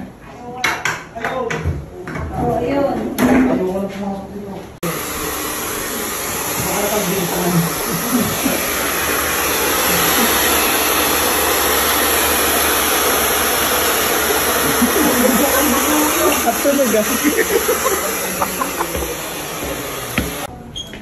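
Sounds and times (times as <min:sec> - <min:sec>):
hair dryer blowing: 0:04.8 - 0:20.5.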